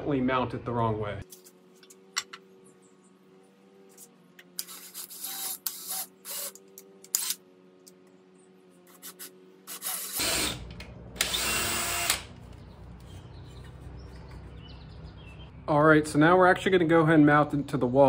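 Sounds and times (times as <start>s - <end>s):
cordless drill drilling: 4.7s - 6.6s, 9.7s - 12.3s.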